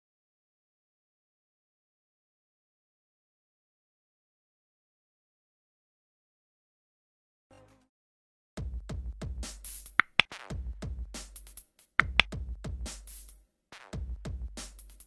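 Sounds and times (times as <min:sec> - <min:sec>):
short sharp high clicks: 0:10.0 - 0:10.3.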